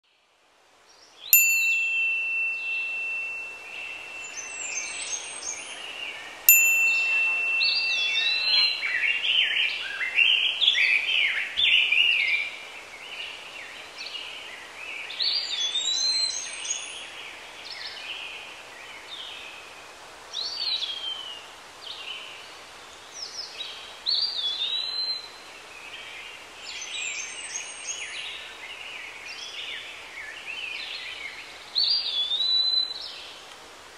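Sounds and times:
songbirds chirping: 0.1 - 33.9
high clear chime: 1.4 - 5.5, 6.5 - 9.1.

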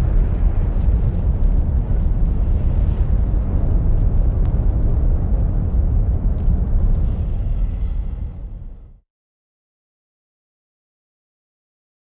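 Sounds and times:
faint crackles: 0.0 - 8.9
deep rumble: 0.0 - 9.0.

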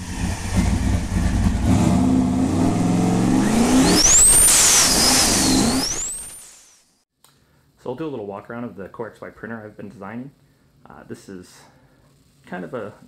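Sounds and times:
car engine revving: 0.0 - 6.6
high whistling whine: 0.2 - 7.0.

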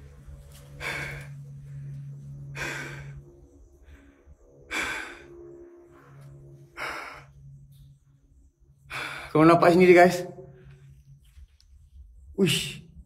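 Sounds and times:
man breathing heavily: 0.0 - 9.4
steady low hum: 0.0 - 13.0.

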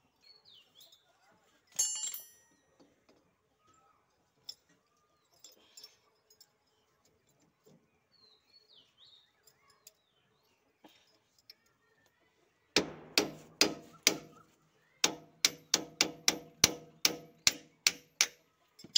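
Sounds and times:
metal parts clinking: 1.8 - 2.4.

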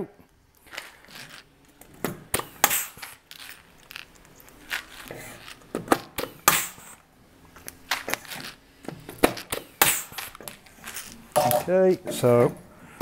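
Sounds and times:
knocks of tool handling: 8.8 - 12.6.

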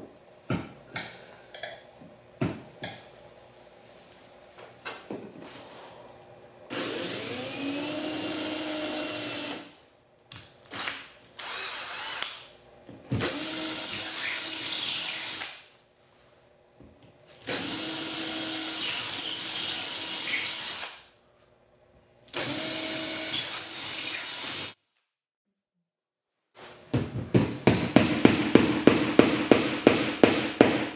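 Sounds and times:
cordless drill whining: 6.7 - 9.7, 10.7 - 12.3, 13.2 - 15.5, 17.5 - 21.0, 22.3 - 24.8.

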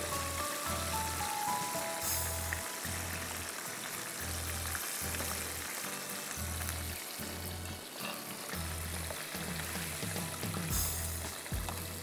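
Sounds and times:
food frying in oil: 0.0 - 12.0
background music with bass line: 4.2 - 12.0.

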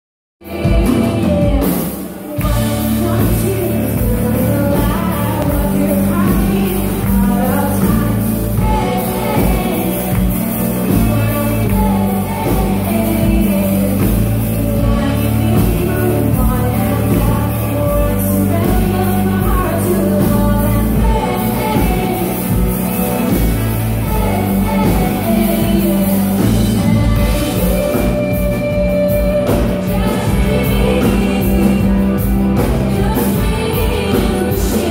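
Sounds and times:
live pop-rock band: 0.4 - 34.9
woman singing: 0.4 - 34.9.

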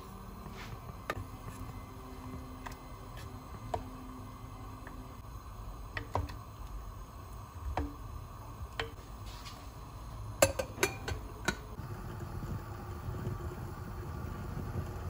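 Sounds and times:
glass lid clinking on pot: 10.4 - 11.6.

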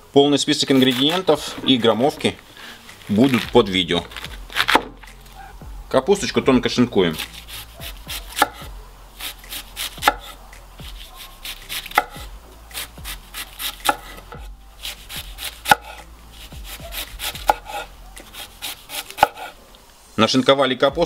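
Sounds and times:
knife slicing cabbage on board: 0.7 - 2.0, 4.1 - 5.3, 7.1 - 19.6.

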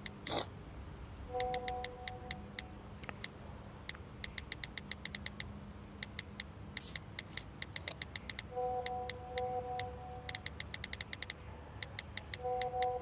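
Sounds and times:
quick light ticks: 1.4 - 13.0
faint held musical chord: 8.5 - 10.3, 12.4 - 13.0.

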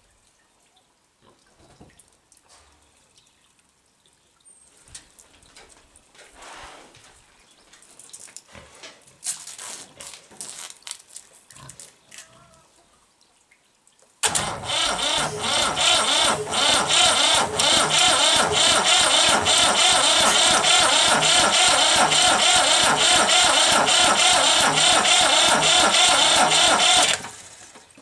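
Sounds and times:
diesel engine cranking on starter: 14.2 - 27.9.

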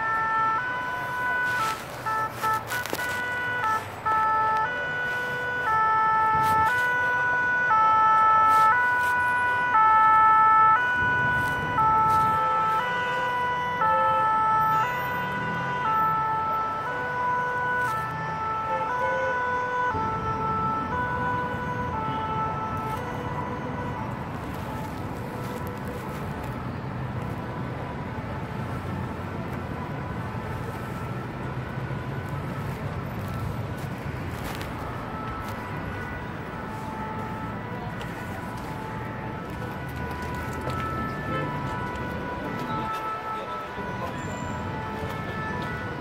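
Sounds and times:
two-tone siren: 0.0 - 46.0.

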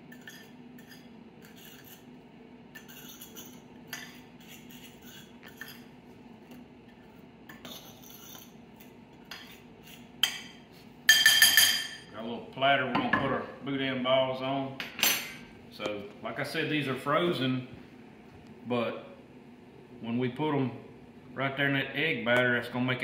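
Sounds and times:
fork scraping in ceramic bowl: 0.1 - 5.9, 7.5 - 10.5.

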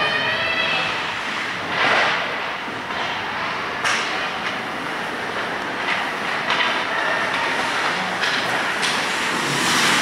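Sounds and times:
hockey sticks and puck clacking: 5.8 - 10.0
skate blades scraping ice: 7.2 - 10.0.

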